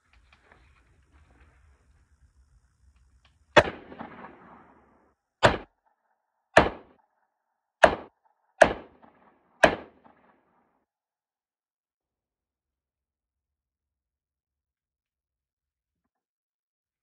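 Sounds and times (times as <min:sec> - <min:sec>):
revolver gunshots: 0:03.6 - 0:05.9, 0:06.6 - 0:07.0, 0:07.8 - 0:10.6.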